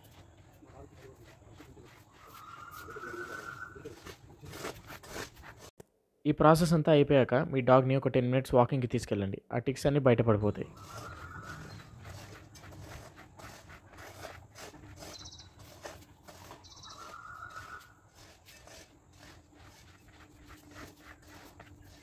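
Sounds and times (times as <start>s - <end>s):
comb scratching through fur: 0.0s - 5.7s, 10.7s - 22.0s.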